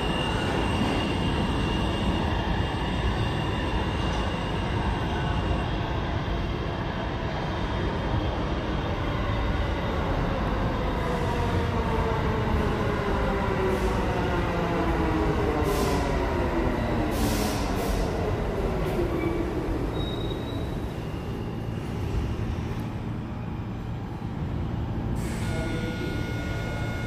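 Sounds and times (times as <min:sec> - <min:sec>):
subway train motor whine: 0:10.5 - 0:27.0
air brake hisses: 0:17.1 - 0:18.1.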